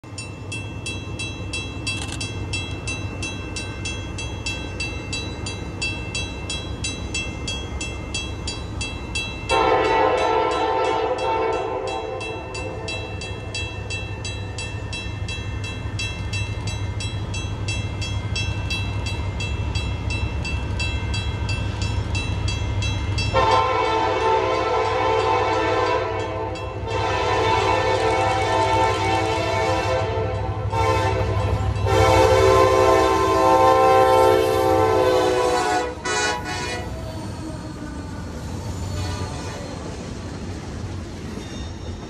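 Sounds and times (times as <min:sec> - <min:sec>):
diesel locomotives rumbling: 0:00.0 - 0:42.0
locomotive air horn blast: 0:09.5 - 0:12.8, 0:23.4 - 0:37.0.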